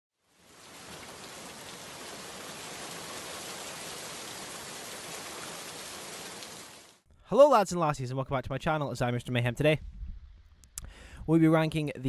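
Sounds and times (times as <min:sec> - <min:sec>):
steady rain: 0:00.2 - 0:07.0.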